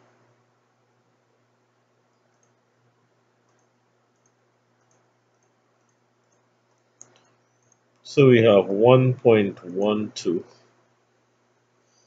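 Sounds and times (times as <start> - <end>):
faint steady hum: 0.0 - 12.0
computer mouse clicks: 2.2 - 2.7, 3.4 - 8.0.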